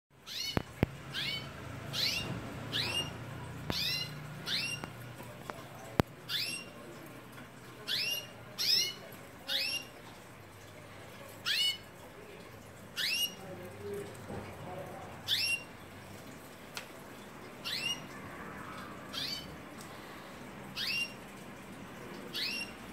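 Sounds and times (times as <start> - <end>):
canaries chirping: 0.2 - 7.0, 7.8 - 10.0, 11.4 - 11.9, 12.8 - 14.0, 14.7 - 15.8, 17.4 - 21.3, 22.2 - 22.9.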